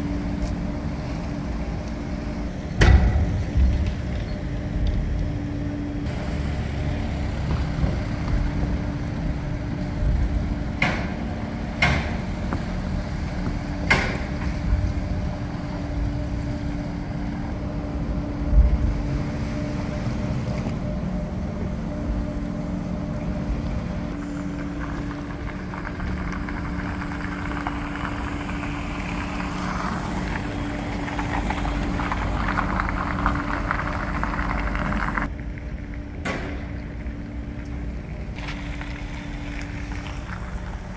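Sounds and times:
low engine rumble: 0.0 - 40.9
heavy thump: 2.8 - 4.3
metal ramp clanks: 2.8 - 5.2
hiss of vehicles rolling: 23.8 - 35.3, 38.2 - 40.9.

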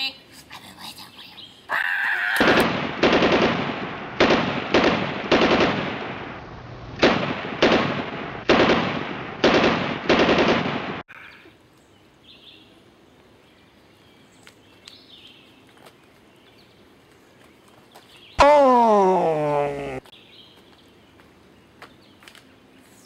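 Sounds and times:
faint outdoor background: 0.0 - 23.0
echoing gunshots: 2.4 - 6.4, 7.0 - 11.0.

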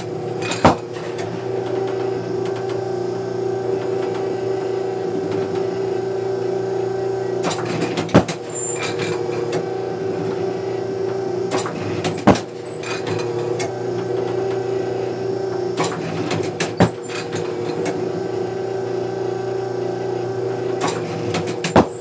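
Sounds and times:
machine electric hum: 0.0 - 22.0
mechanical clacks: 7.4 - 9.7, 11.0 - 14.7, 15.8 - 18.0, 20.7 - 22.0.

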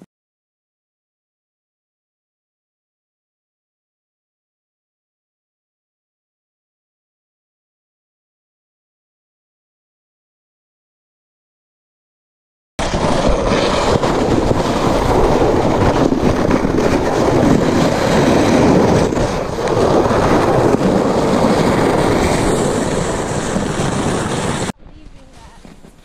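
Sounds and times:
sled scraping over snow: 12.8 - 26.0
wind on microphone: 12.8 - 26.0.

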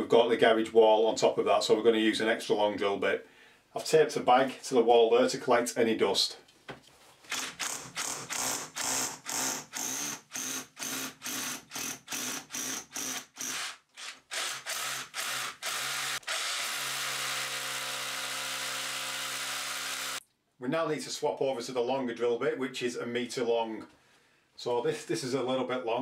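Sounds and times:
drill boring into wall: 7.3 - 20.2.

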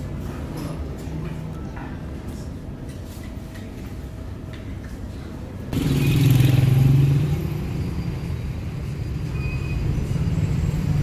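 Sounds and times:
road traffic rumble: 5.6 - 11.0
vehicle engine: 5.7 - 11.0.

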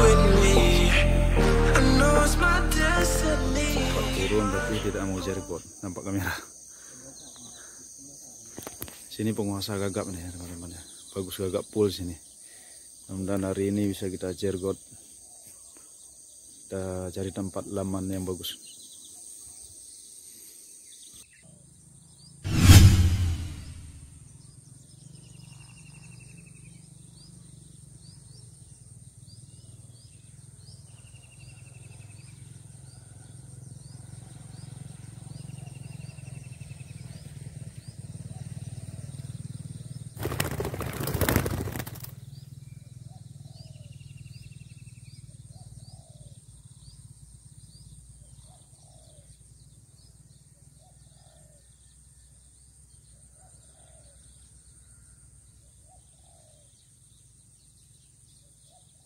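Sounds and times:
loud rush of noise: 22.5 - 24.0.

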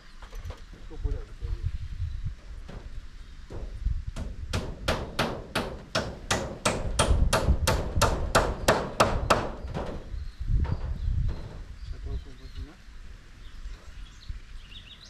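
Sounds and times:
hammer hitting nail: 4.2 - 10.0.

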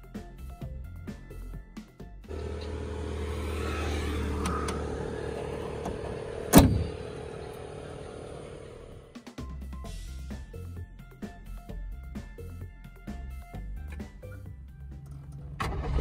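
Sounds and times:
car bonnet slamming shut: 4.4 - 7.2.

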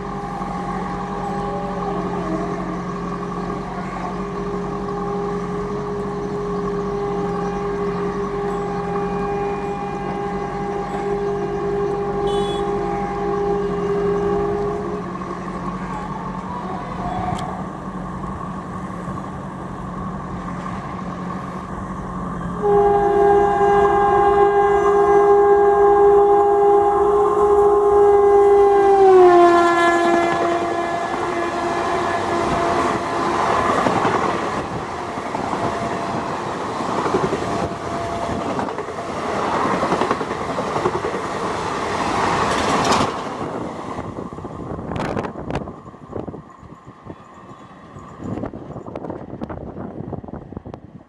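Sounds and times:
locomotive horn blasts: 0.0 - 17.7, 22.5 - 43.1
train running noise: 0.0 - 51.0.

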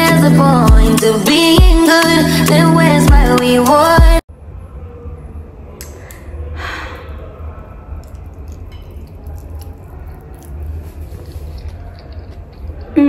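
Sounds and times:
person chewing: 8.0 - 13.0.

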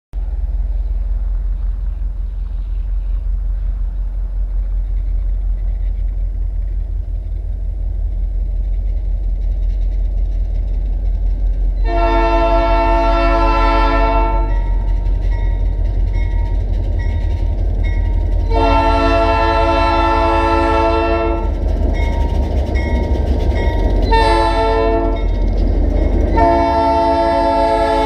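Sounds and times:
freight train rumble: 0.1 - 28.0
locomotive air horn: 11.8 - 14.8, 18.5 - 21.6, 24.1 - 25.3, 26.4 - 28.0.

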